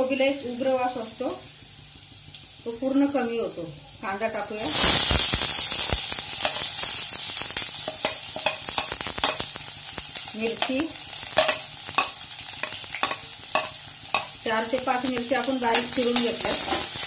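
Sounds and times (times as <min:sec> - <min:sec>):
onion sizzling in oil: 0:00.0 - 0:17.0
spoon scraping pan: 0:07.8 - 0:09.6, 0:10.5 - 0:14.4, 0:15.0 - 0:17.0.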